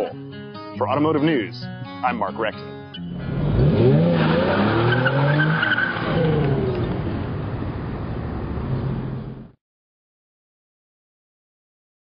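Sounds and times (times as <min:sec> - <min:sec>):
car engine revving: 0:03.0 - 0:09.5
tyres squealing: 0:04.0 - 0:06.4.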